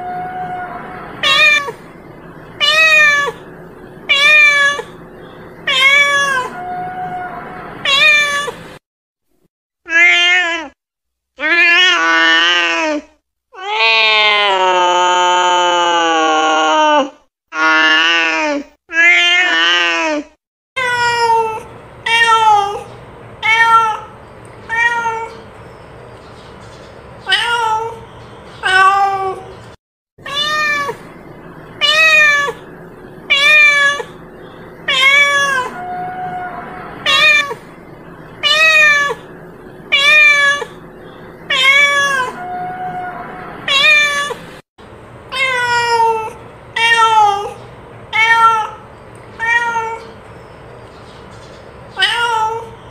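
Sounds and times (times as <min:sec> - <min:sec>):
cat meowing: 0:00.0 - 0:01.9, 0:02.6 - 0:03.5, 0:04.1 - 0:05.0, 0:05.7 - 0:08.7, 0:09.9 - 0:10.8, 0:20.8 - 0:25.4, 0:27.3 - 0:28.0, 0:28.6 - 0:29.5, 0:30.2 - 0:31.2, 0:31.8 - 0:32.7, 0:33.3 - 0:34.2, 0:34.8 - 0:37.7, 0:38.4 - 0:40.8, 0:41.5 - 0:44.4, 0:45.3 - 0:48.8, 0:49.4 - 0:50.2, 0:52.0 - 0:52.8.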